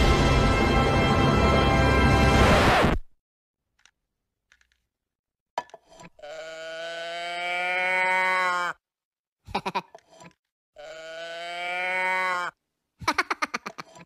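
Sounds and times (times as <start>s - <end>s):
moo box toy mooing: 6.2s - 8.8s, 10.8s - 12.6s.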